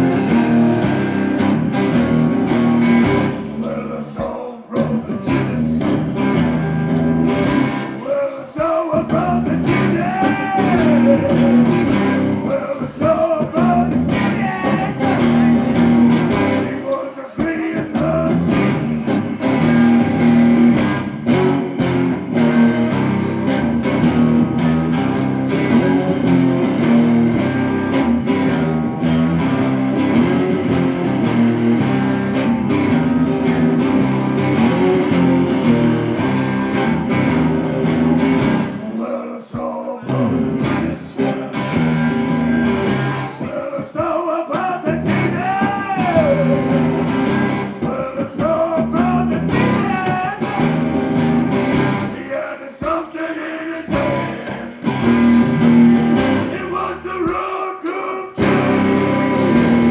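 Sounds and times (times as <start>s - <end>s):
blues-rock band playing: 0.0s - 38.8s, 40.1s - 53.1s, 53.8s - 56.8s, 58.4s - 59.9s
electric guitar bent notes: 0.0s - 39.0s, 40.0s - 57.1s, 58.4s - 59.9s.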